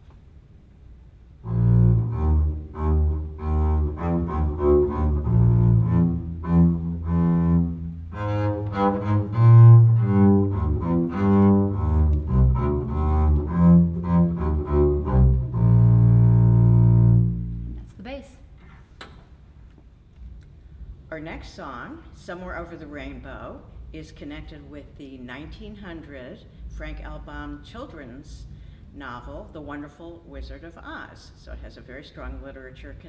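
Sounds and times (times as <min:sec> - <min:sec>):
bowed double bass: 0:01.2 - 0:17.9.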